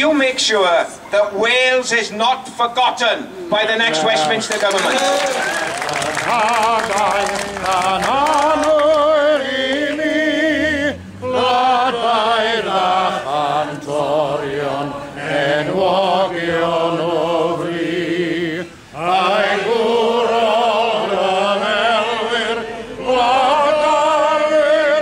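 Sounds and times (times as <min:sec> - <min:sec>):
crowd singing in unison: 0:05.4 - 0:25.0.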